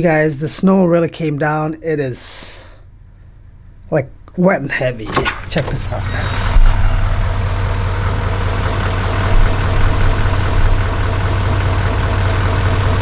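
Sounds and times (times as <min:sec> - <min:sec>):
truck engine idling: 0:04.7 - 0:13.0.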